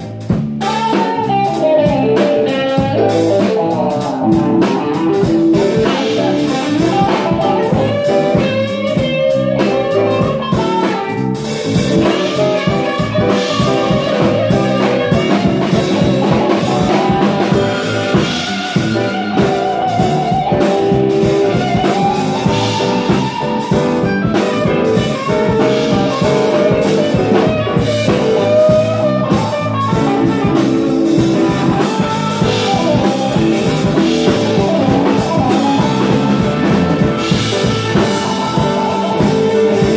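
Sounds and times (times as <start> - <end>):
electric guitar lead: 0.0 - 39.9
live band playing: 0.0 - 39.9.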